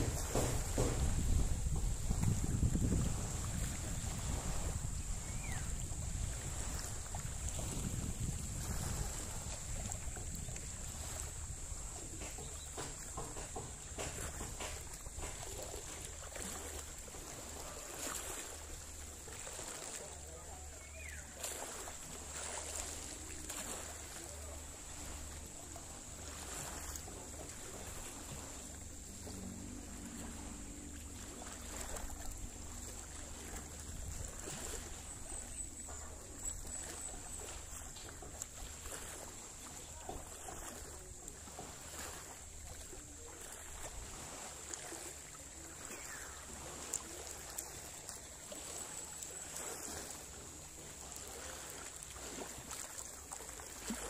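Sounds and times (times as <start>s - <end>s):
light knocks: 0.0s - 2.4s, 12.0s - 15.8s
small waves lapping against hull: 0.0s - 54.0s.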